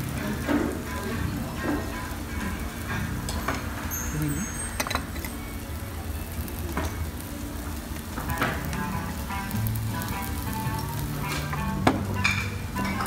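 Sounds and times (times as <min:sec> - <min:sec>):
steak sizzling on hot stone: 0:00.0 - 0:13.0
dishes and cutlery clinking: 0:03.2 - 0:05.4, 0:11.2 - 0:13.0.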